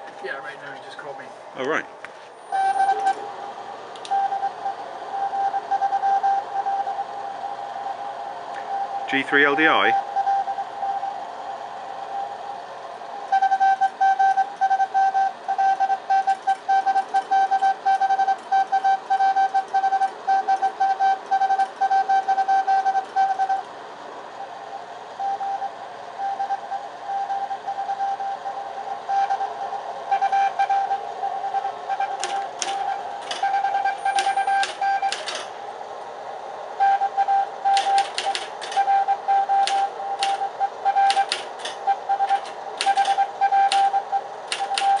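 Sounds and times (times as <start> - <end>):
morse code beeps: 2.5 - 3.3, 4.1 - 7.4, 8.7 - 11.2, 13.3 - 23.7, 25.2 - 35.5, 36.8 - 45.0
typewriter keys clacking: 32.2 - 33.4, 34.1 - 35.5, 37.8 - 38.9, 39.6 - 40.4, 41.1 - 43.9, 44.5 - 45.0.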